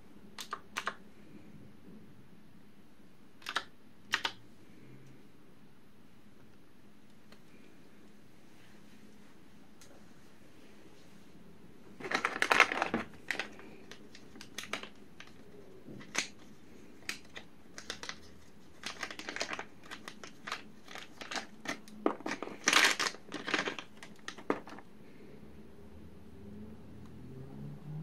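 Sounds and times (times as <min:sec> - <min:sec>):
plastic bag crinkling: 0:11.9 - 0:24.9.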